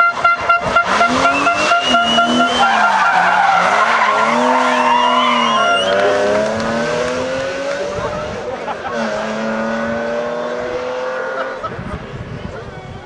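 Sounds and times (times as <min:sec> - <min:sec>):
tyres skidding and squealing: 0:00.0 - 0:10.0
car engine revving: 0:00.0 - 0:11.8.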